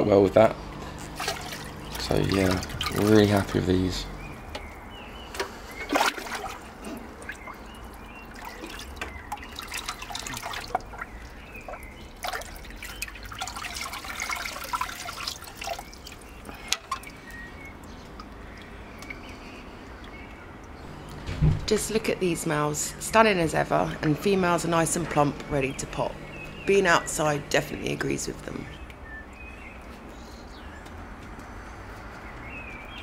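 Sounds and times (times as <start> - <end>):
water sloshing and dripping: 0.7 - 30.0
small water splashes: 0.8 - 3.6, 4.2 - 20.9.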